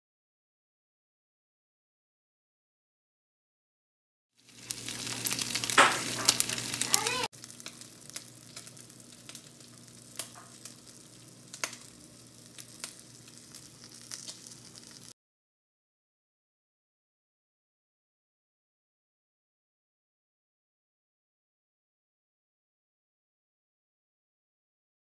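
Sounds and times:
batter sizzling in frying pan: 4.4 - 15.2.

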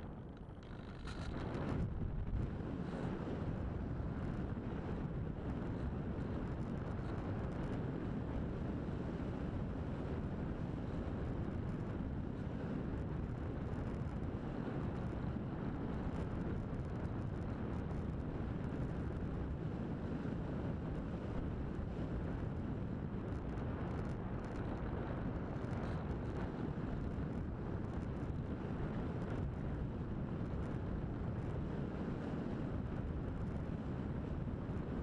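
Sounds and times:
airflow buffeting microphone: 0.0 - 7.5.

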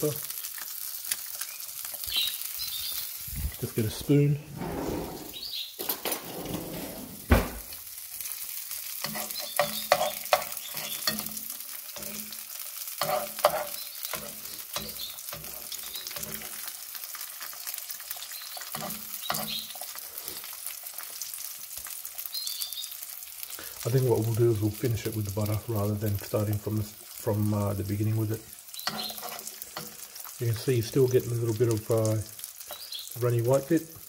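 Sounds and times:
egg sizzling in a pan: 0.0 - 4.4, 5.2 - 6.0, 7.2 - 34.0
metal spoon scraping pan: 9.0 - 12.3, 13.0 - 16.7, 18.6 - 20.0, 28.8 - 30.3
spoon knocking pan: 9.0 - 12.4, 13.0 - 16.7, 18.6 - 19.9, 28.8 - 30.0.

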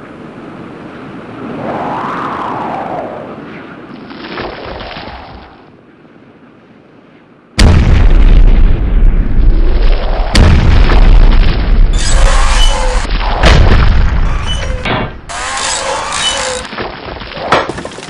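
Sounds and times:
whooshing noise: 1.4 - 3.7
distorted explosion rumble: 7.6 - 15.3.

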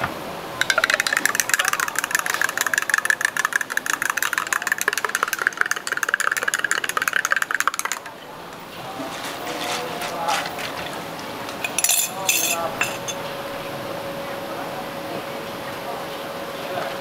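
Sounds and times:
small appliance motor rattling: 0.6 - 8.1.

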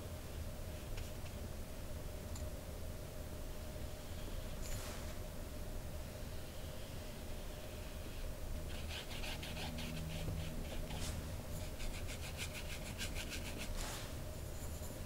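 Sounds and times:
paintbrush strokes on paper: 8.7 - 15.0.

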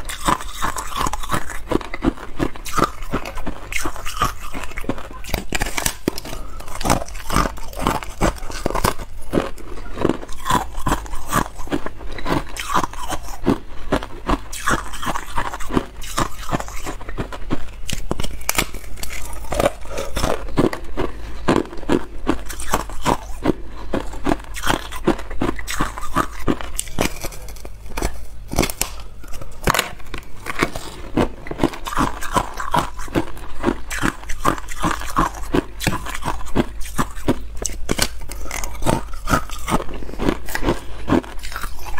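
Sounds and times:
ice crunching and cracking: 0.1 - 17.3, 17.9 - 23.4, 24.2 - 41.9.

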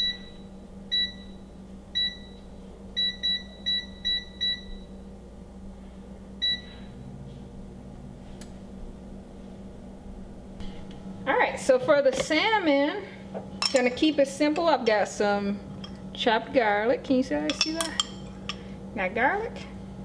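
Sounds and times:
air fryer panel beeps: 0.0 - 4.9, 6.4 - 6.8.

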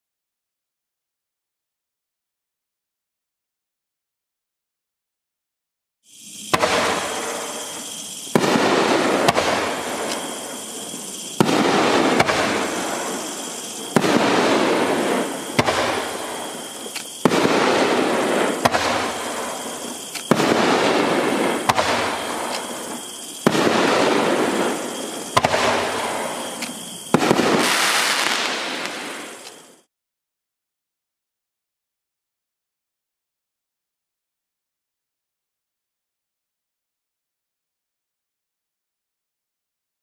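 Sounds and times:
fireworks bangs: 6.3 - 29.9.

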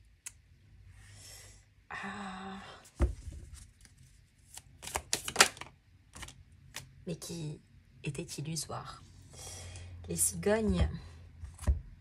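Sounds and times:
thump on a table: 3.0 - 3.4
woman breathing in: 9.3 - 10.0.

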